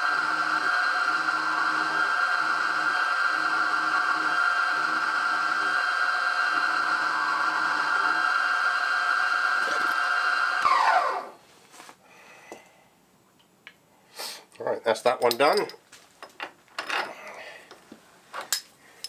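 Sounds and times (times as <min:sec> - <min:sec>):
end mill cutting steel: 0:00.0 - 0:11.3
milling spindle whine: 0:00.0 - 0:11.4.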